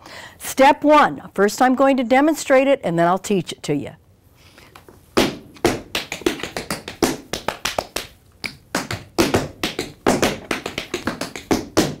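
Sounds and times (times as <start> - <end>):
tap shoes on wooden floor: 5.2 - 12.0.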